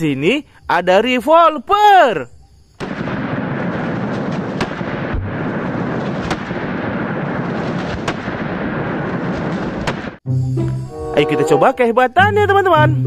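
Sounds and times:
gunshot cracks: 0:02.8 - 0:10.2.

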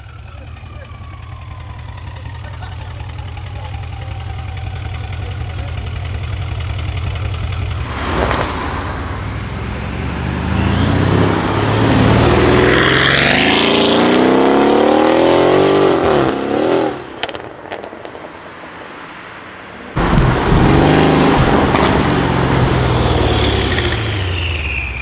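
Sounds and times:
car engine idling: 0:00.0 - 0:12.5
car accelerating hard: 0:07.8 - 0:17.4, 0:20.0 - 0:24.5.

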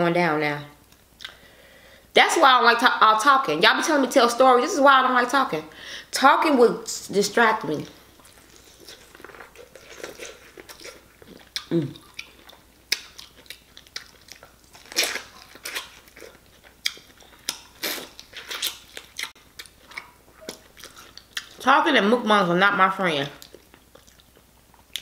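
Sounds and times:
biting and chewing corn: 0:08.2 - 0:21.6.

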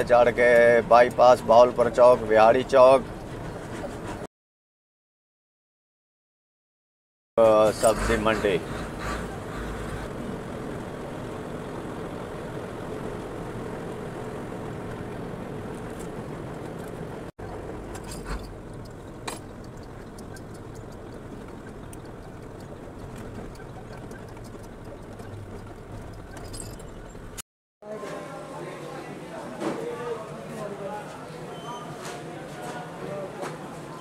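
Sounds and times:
truck engine and road noise: 0:00.0 - 0:04.3, 0:07.4 - 0:27.4.

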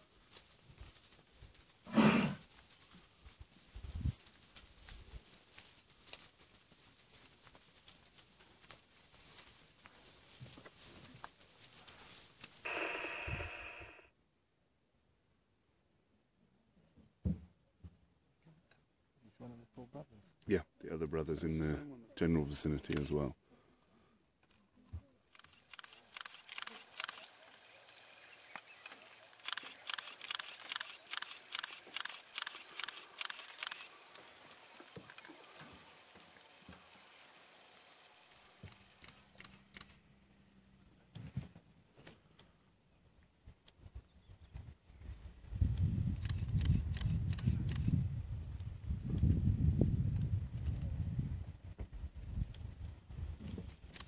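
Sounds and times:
dry grass crackling and rustling: 0:00.0 - 0:13.8
harsh breathy hiss: 0:12.6 - 0:14.1
camera shutter clicking: 0:12.7 - 0:14.0, 0:25.4 - 0:27.7, 0:28.7 - 0:34.1, 0:38.6 - 0:40.0, 0:46.2 - 0:47.9.

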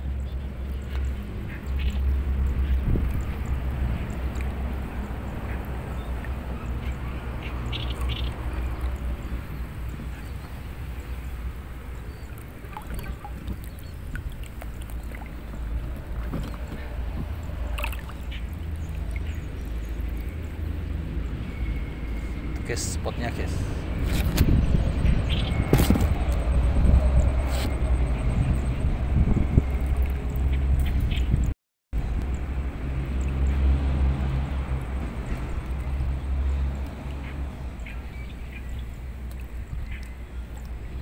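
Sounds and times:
steady low rumble: 0:00.0 - 0:41.0
water sloshing as someone wades: 0:00.1 - 0:22.6, 0:32.0 - 0:41.0
heavy vehicle passing: 0:01.2 - 0:12.0, 0:32.0 - 0:39.3
sharp splash: 0:12.3 - 0:15.4, 0:16.2 - 0:20.4.

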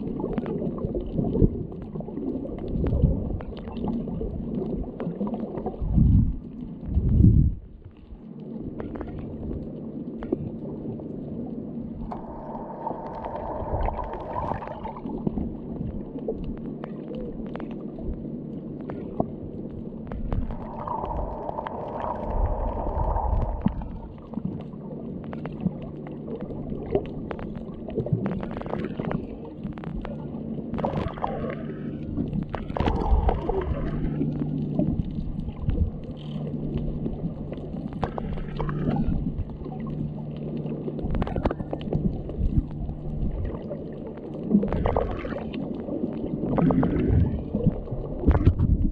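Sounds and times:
muffled underwater noise: 0:00.0 - 0:48.9
steady low hum: 0:00.0 - 0:48.9
water rushing: 0:12.0 - 0:16.0, 0:20.2 - 0:24.6, 0:30.7 - 0:34.9.

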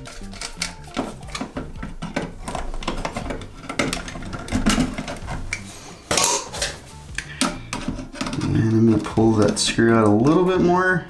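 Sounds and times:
pliers clicking on metal wire: 0:00.0 - 0:01.9
metal scrape: 0:00.0 - 0:10.8.

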